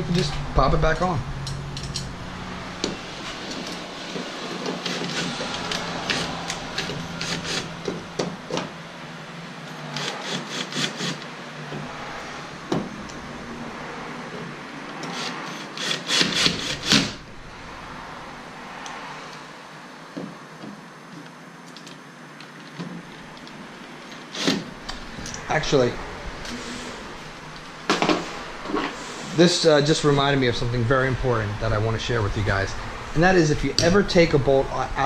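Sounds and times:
cordless drill motor hum: 0:02.8 - 0:08.3, 0:09.9 - 0:11.9, 0:15.0 - 0:17.2
drill clutch clicking: 0:02.8 - 0:08.6, 0:09.9 - 0:11.3, 0:14.9 - 0:17.2.

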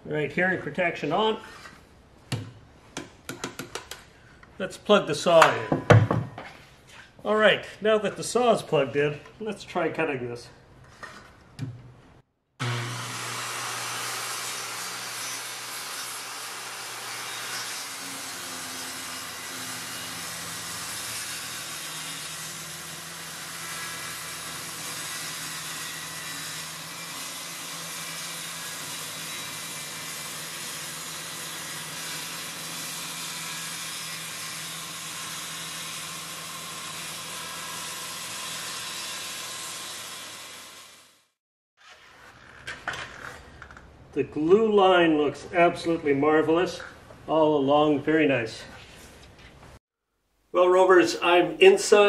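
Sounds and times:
circular saw cutting plywood: 0:12.6 - 0:42.6.

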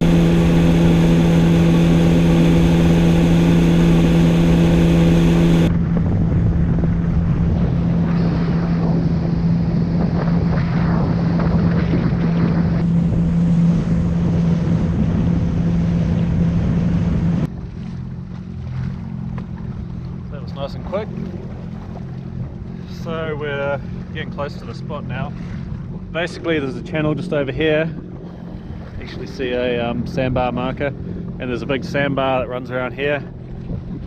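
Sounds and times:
water rushing: 0:00.0 - 0:05.7
wind buffeting microphone: 0:00.0 - 0:20.2, 0:20.9 - 0:34.0
jet ski engine droning: 0:00.0 - 0:34.0.

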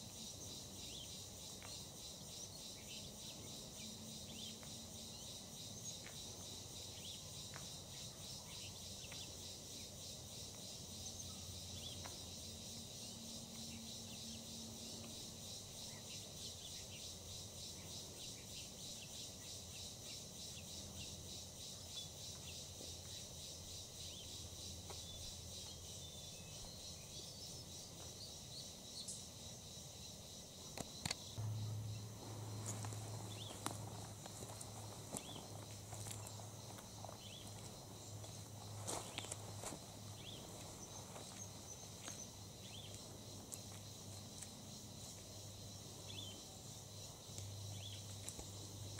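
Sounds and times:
insects chirping: 0:00.0 - 0:48.9
low hum: 0:31.4 - 0:34.1.

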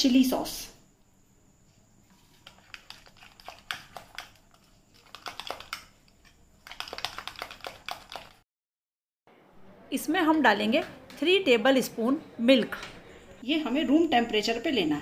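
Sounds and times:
spoon stirring in glass bowl: 0:02.1 - 0:08.4.

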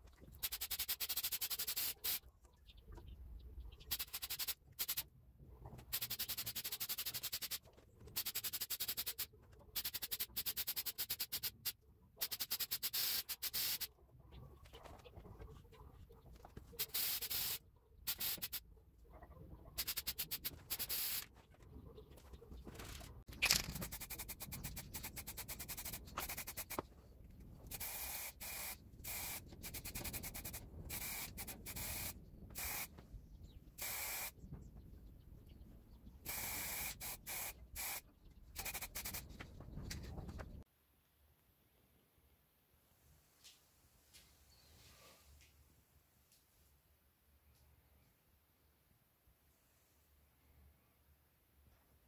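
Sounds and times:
spray paint hissing in bursts: 0:00.4 - 0:02.2, 0:03.8 - 0:05.1, 0:05.8 - 0:13.9, 0:16.8 - 0:18.6, 0:19.8 - 0:21.3, 0:23.8 - 0:26.8, 0:27.7 - 0:32.9, 0:33.8 - 0:34.4, 0:36.2 - 0:39.3.

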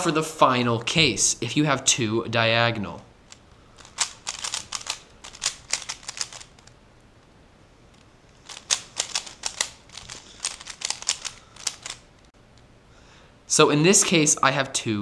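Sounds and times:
puzzle cube plastic clicking: 0:03.3 - 0:06.8, 0:08.0 - 0:12.0.

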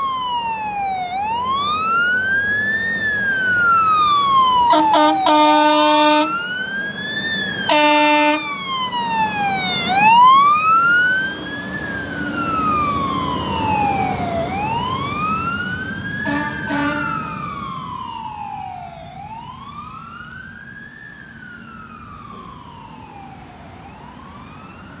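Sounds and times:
electronic siren wailing: 0:00.0 - 0:20.2
air horn blasts: 0:04.7 - 0:06.3, 0:07.7 - 0:08.5, 0:16.2 - 0:17.2.

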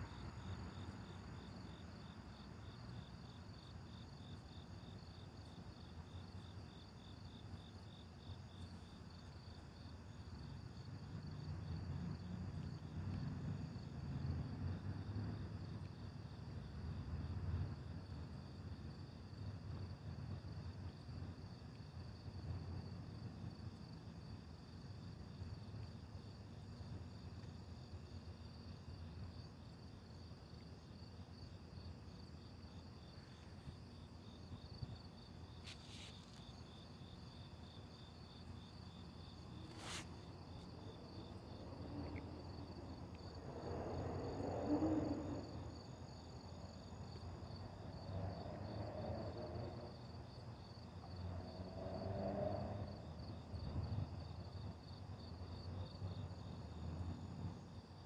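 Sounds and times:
crickets chirping: 0:00.0 - 0:58.0
distant traffic rumble: 0:37.0 - 0:45.8.

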